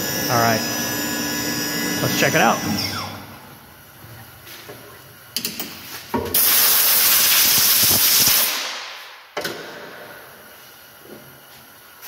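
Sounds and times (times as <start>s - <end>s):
compressed air hissing: 6.4s - 8.7s.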